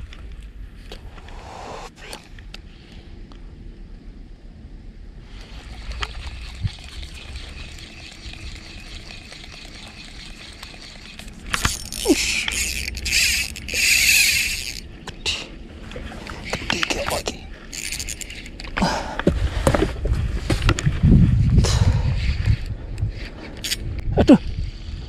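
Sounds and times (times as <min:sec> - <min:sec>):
fishing reel whirring: 0:05.4 - 0:14.9, 0:16.5 - 0:18.7
loud rasping burst: 0:05.6 - 0:14.8.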